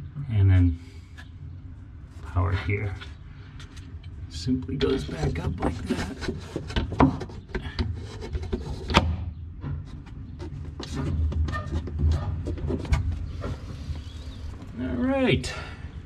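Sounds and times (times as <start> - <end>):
wood rubbing: 4.8 - 9.0, 9.6 - 14.8.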